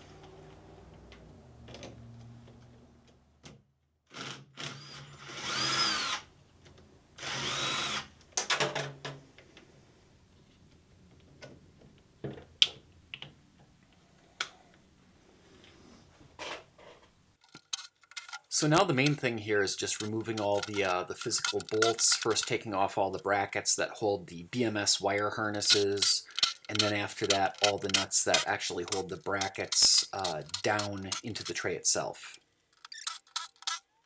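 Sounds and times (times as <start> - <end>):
cordless drill spinning: 4.1 - 6.3, 7.2 - 8.2, 17.6 - 22.5, 25.6 - 31.6, 32.8 - 33.9
sharp metallic clicks: 17.5 - 23.2, 25.5 - 33.9.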